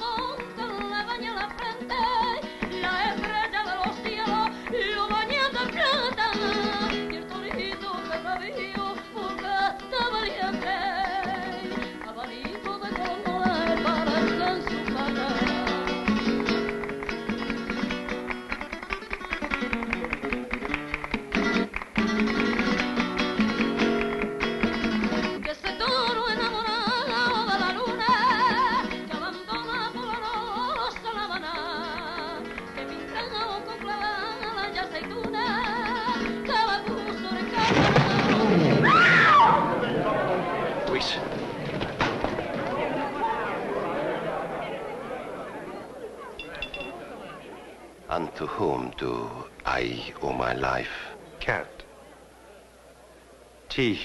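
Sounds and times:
woman singing: 0:00.0 - 0:16.2, 0:25.0 - 0:38.6
acoustic guitars strummed and plucked: 0:00.0 - 0:45.3.

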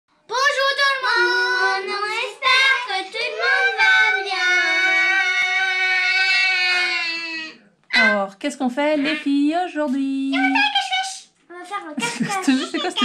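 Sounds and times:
children singing: 0:00.6 - 0:07.5.

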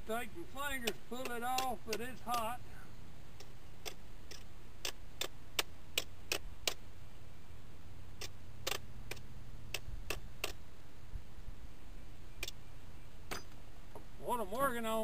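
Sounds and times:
low steady hum: 0:00.0 - 0:15.0
sharp light clicks: 0:03.4 - 0:06.8, 0:12.4 - 0:12.6.

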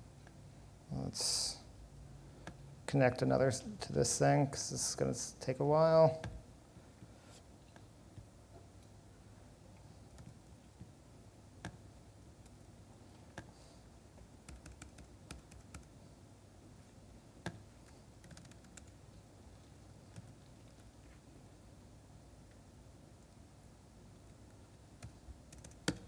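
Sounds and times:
typing on a laptop keyboard: 0:14.4 - 0:15.9, 0:18.2 - 0:19.0, 0:25.0 - 0:26.0.

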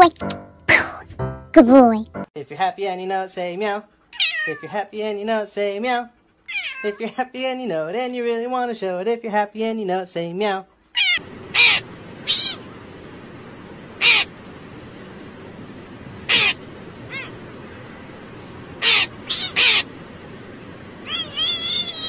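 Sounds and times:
steady background hiss: 0:02.4 - 0:22.0
cat meowing: 0:04.1 - 0:04.7, 0:06.5 - 0:07.0, 0:10.9 - 0:12.8, 0:16.3 - 0:17.4, 0:18.8 - 0:19.9, 0:21.0 - 0:22.0.

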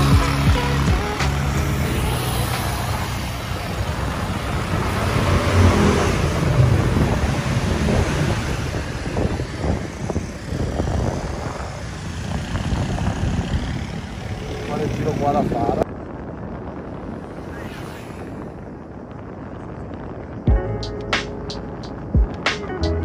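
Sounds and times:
motor scooter engine running: 0:00.0 - 0:15.6
rushing road and wind noise: 0:00.0 - 0:23.0.

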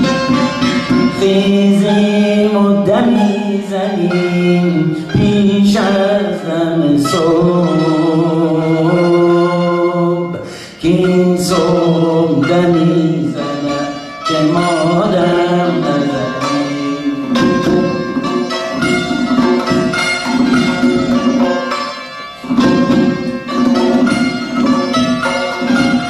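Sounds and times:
tonbak drumming: 0:00.0 - 0:09.6, 0:10.2 - 0:26.0
santur notes ringing: 0:00.0 - 0:26.0
man singing classical vocals: 0:01.0 - 0:19.7.

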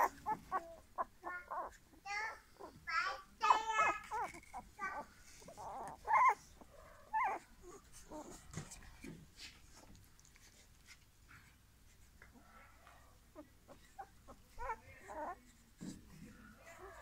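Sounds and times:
puppies whimpering: 0:00.0 - 0:02.8, 0:03.5 - 0:08.5, 0:13.3 - 0:15.4.

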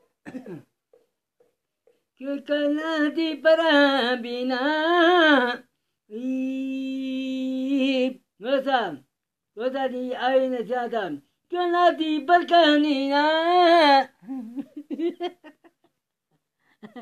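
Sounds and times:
man singing unaccompanied: 0:02.2 - 0:14.2.

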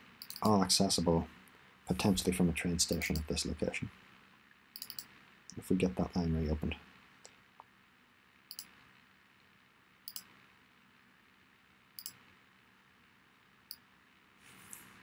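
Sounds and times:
faint room hiss: 0:00.0 - 0:15.0
computer mouse clicking: 0:00.2 - 0:00.5, 0:04.8 - 0:05.1, 0:08.5 - 0:08.8, 0:10.1 - 0:10.3, 0:12.0 - 0:12.2.

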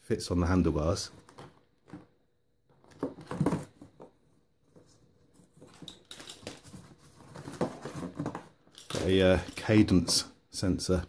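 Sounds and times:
parts rustling in cardboard box: 0:02.8 - 0:09.6.

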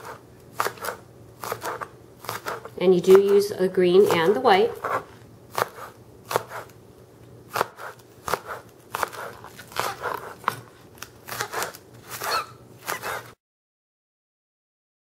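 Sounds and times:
knife chopping on plastic board: 0:00.0 - 0:03.4, 0:04.0 - 0:06.7, 0:07.5 - 0:13.3.

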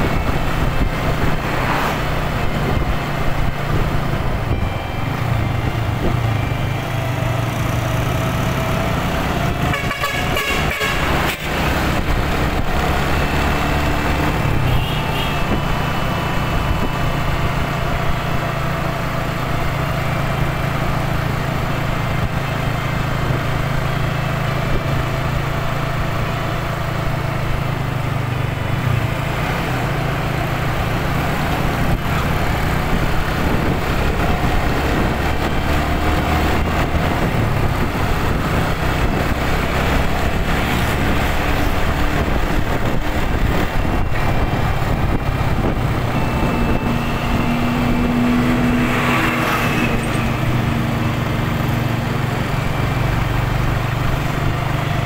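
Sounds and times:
other vehicle engines: 0:00.0 - 0:55.0
wind and road noise: 0:00.0 - 0:55.0
motorcycle engine running: 0:50.0 - 0:55.0.

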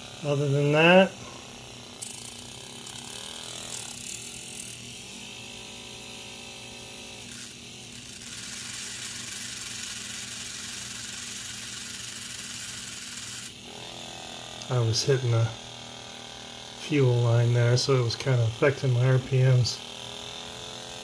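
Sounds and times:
model engine rattling: 0:07.3 - 0:13.3.

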